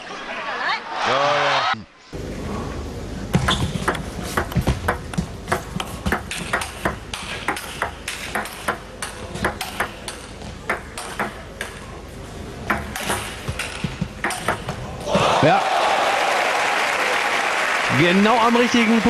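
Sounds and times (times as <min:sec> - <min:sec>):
table tennis ball hits: 0:03.3 - 0:11.8, 0:12.6 - 0:14.8.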